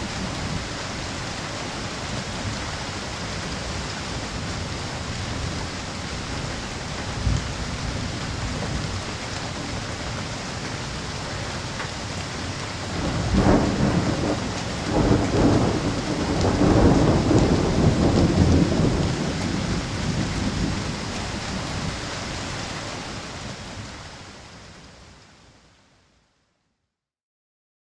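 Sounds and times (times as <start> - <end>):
rain hiss: 0.0 - 26.2
rolling rumble of thunder: 6.4 - 9.8, 12.7 - 22.1
sharp crack of thunder: 12.9 - 21.0.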